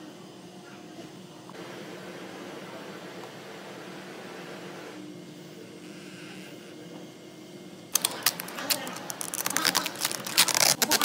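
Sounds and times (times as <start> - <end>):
plastic film crackling: 7.9 - 11.0.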